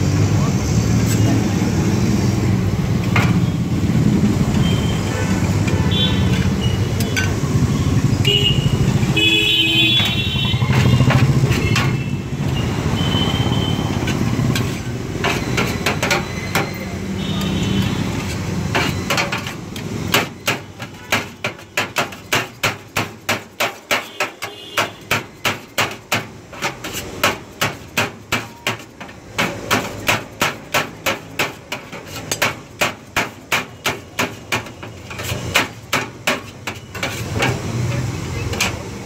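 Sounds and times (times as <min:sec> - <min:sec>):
knife chopping on metal tray: 0:14.0 - 0:38.9.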